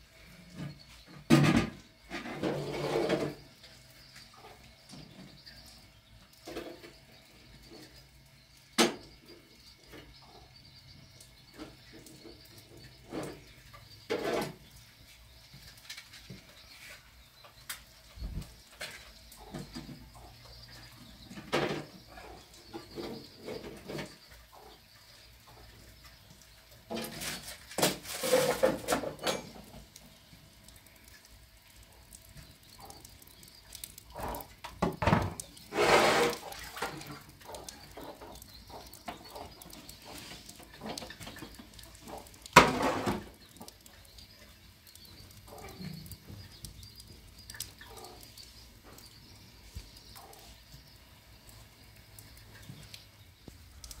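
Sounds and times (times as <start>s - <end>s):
metal pots and lids clattering: 0.6s - 3.4s, 13.1s - 14.7s, 26.9s - 29.9s, 40.6s - 43.4s.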